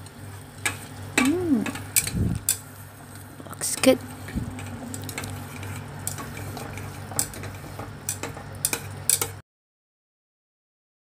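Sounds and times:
chopsticks tapping metal pot: 0:06.1 - 0:09.3.

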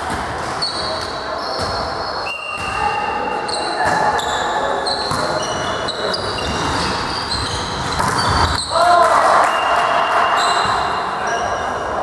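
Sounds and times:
voices echoing in hall: 0:00.0 - 0:12.0
shoes squeaking on court floor: 0:00.5 - 0:08.8.

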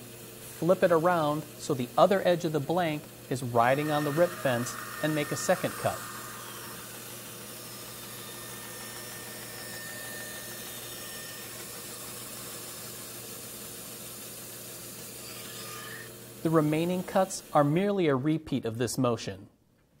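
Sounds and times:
band saw cutting wood: 0:00.4 - 0:17.9.

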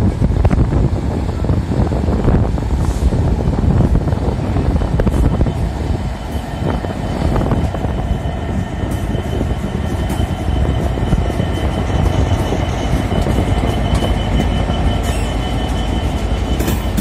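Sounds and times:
locomotive engine rumbling: 0:00.0 - 0:17.0
high-pitched wheel squeal: 0:06.4 - 0:17.0.

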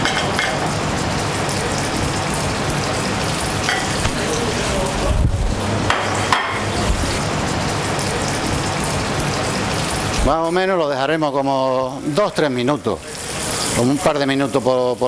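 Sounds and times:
fish frying in hot oil: 0:00.0 - 0:15.0.

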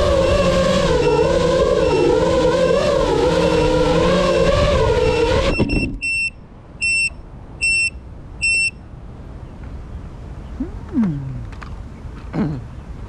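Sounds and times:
electronic buzzer beeps: 0:05.1 - 0:08.8.

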